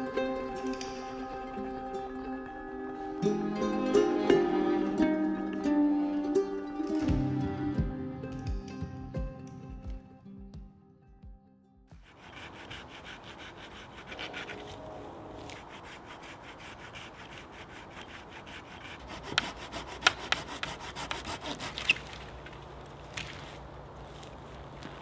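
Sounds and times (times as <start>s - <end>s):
hand saw cutting wood: 12.0s - 22.3s.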